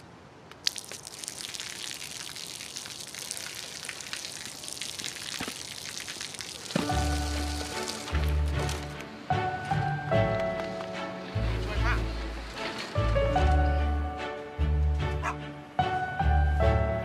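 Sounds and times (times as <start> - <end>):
water drops splashing on pavement: 0.5 - 8.5.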